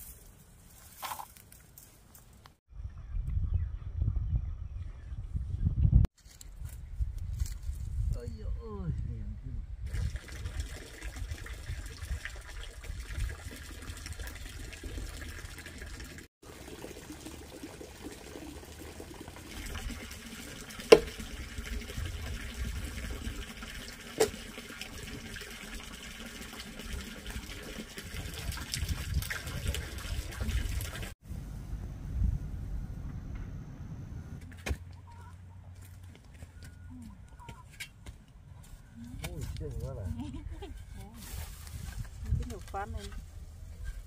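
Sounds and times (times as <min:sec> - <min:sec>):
water running and splashing: 0:09.9 - 0:31.2.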